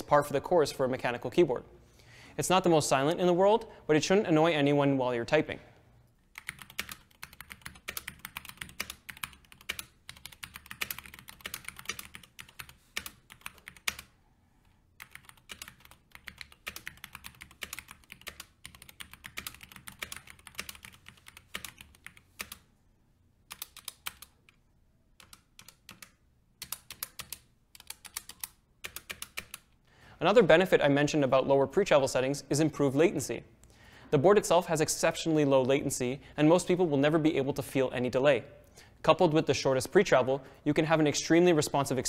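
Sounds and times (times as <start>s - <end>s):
mechanical keyboard typing: 6.4s - 14.1s, 15.0s - 22.6s, 23.5s - 24.6s, 25.2s - 29.7s.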